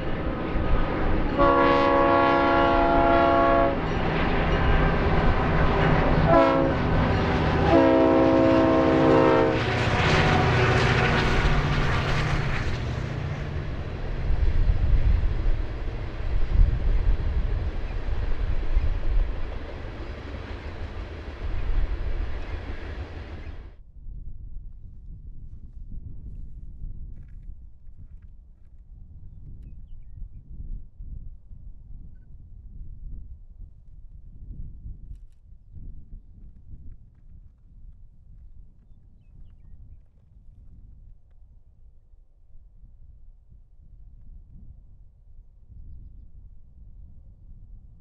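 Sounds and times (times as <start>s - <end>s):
locomotive engine rumble: 0.0s - 23.7s
loud rush of passing train: 0.0s - 23.8s
rail cars rolling by: 0.0s - 23.8s
train air horn blasts: 1.3s - 3.9s, 6.0s - 12.0s.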